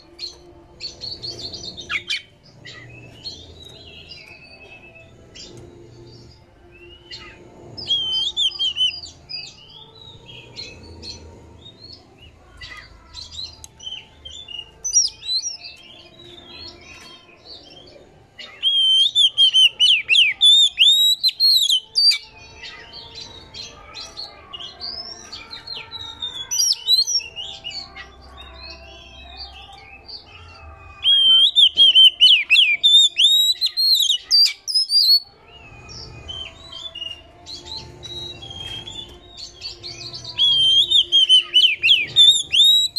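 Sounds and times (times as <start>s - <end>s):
bird whistled notes: 18.6s - 22.2s, 40.4s - 42.9s
bird rapid chattering: 40.0s - 42.9s.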